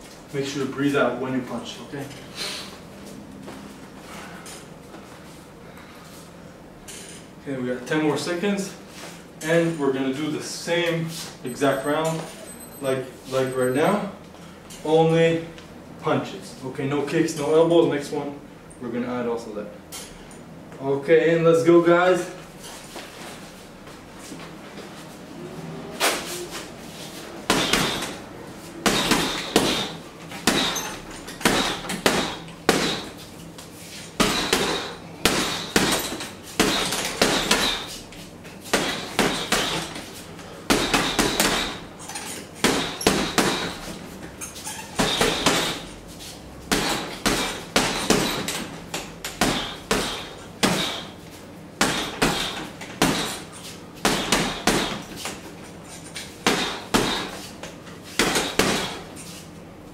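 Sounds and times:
gloves punching heavy bag: 0:27.5 - 0:28.2, 0:28.8 - 0:33.2, 0:34.2 - 0:37.9, 0:38.7 - 0:40.0, 0:40.6 - 0:41.9, 0:42.6 - 0:44.0, 0:44.9 - 0:45.9, 0:46.7 - 0:51.2, 0:51.8 - 0:55.4, 0:56.4 - 0:57.5, 0:58.2 - 0:59.2.

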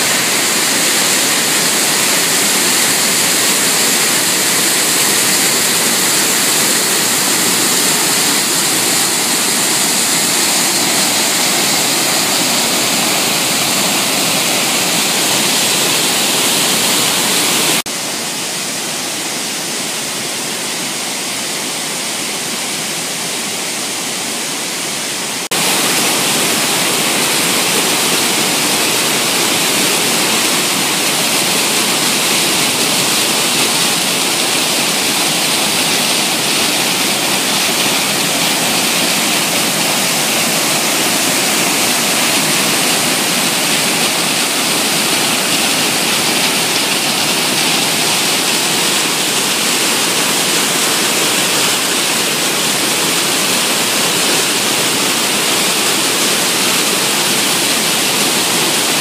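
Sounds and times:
waterfall pouring over rocks: 0:00.0 - 0:59.0.

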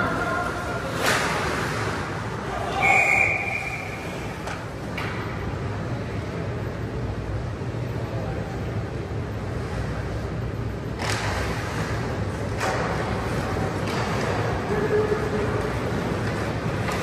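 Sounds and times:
low rumble of rink: 0:00.0 - 0:17.0
skates scraping on ice: 0:11.0 - 0:17.0.

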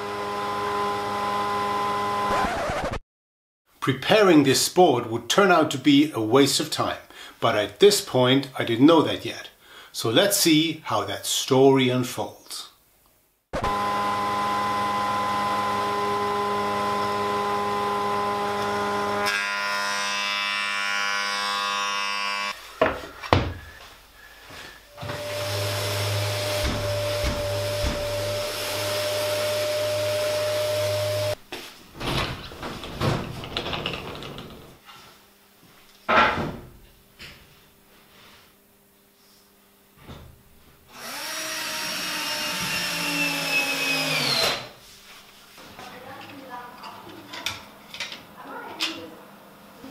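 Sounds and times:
orbital sander running: 0:00.0 - 0:02.6, 0:13.6 - 0:22.6, 0:25.0 - 0:31.4, 0:40.9 - 0:44.4
thickness planer running: 0:00.0 - 0:02.7, 0:13.6 - 0:22.5, 0:25.0 - 0:31.4, 0:41.0 - 0:44.6
knocks of handling wood: 0:31.9 - 0:34.9
cordless drill driving screw: 0:41.0 - 0:44.7.

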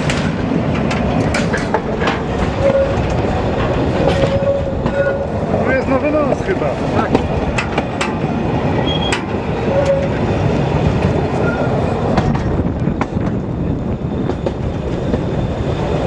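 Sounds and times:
track clicks and knocks: 0:00.0 - 0:05.6, 0:07.0 - 0:10.2
train wheels rumbling on rails: 0:00.0 - 0:16.0.

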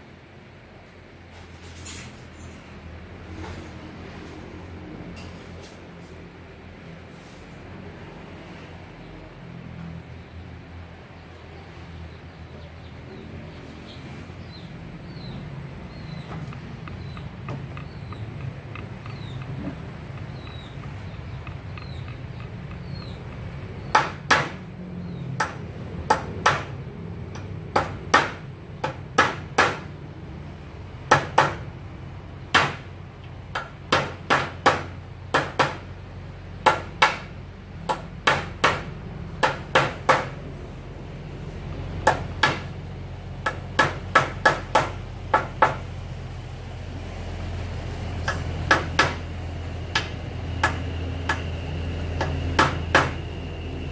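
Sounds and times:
hammer striking wooden door frame: 0:23.8 - 0:24.6, 0:25.4 - 0:26.7, 0:27.8 - 0:29.9, 0:31.1 - 0:31.6, 0:33.6 - 0:35.9, 0:37.9 - 0:40.4, 0:42.1 - 0:42.7, 0:43.4 - 0:45.8, 0:52.6 - 0:53.2.

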